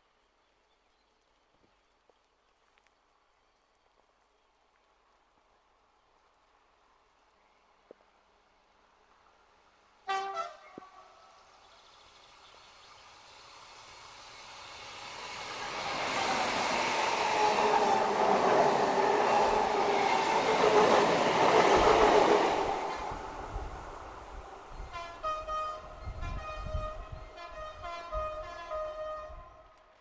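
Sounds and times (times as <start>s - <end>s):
diesel train passing: 10.0s - 29.2s.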